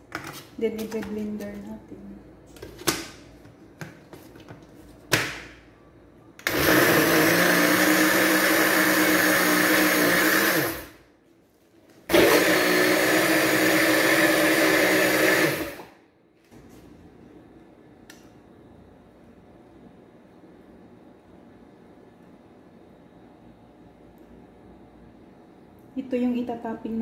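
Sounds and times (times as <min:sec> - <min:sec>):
electric blender motor: 0:06.4 - 0:11.0, 0:12.1 - 0:15.9.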